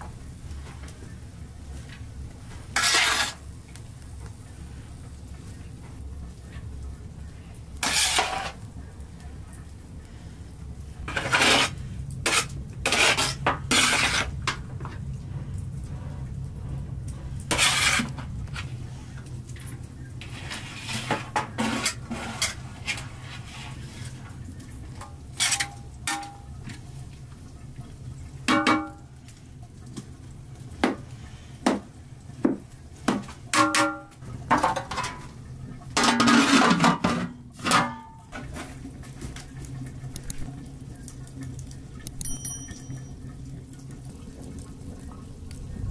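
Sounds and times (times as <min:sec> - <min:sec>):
low steady hum: 0:00.0 - 0:45.9
metal pots and pans clinking: 0:24.9 - 0:26.6, 0:28.4 - 0:29.1, 0:33.1 - 0:38.8, 0:42.1 - 0:43.4.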